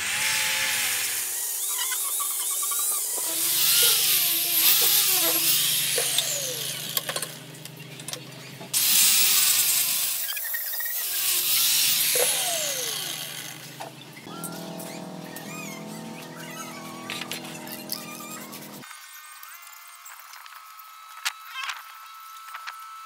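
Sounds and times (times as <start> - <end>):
angle grinder sanding steel: 14.5 - 18.8.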